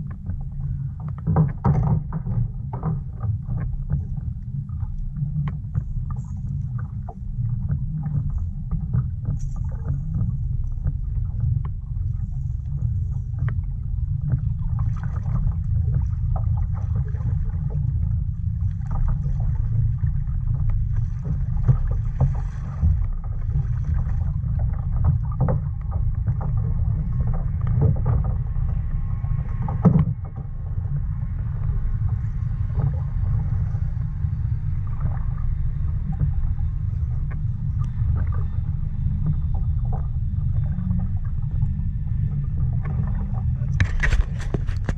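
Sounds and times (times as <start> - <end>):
steady low rumble: 0.0 - 44.9
light knocks on hull: 1.1 - 4.0
waves slapping against kayak hull: 18.8 - 28.5, 42.8 - 44.9.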